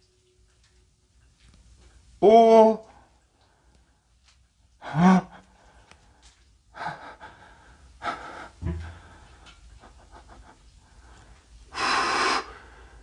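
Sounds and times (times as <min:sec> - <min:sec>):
breathy exhales: 0:11.7 - 0:13.0.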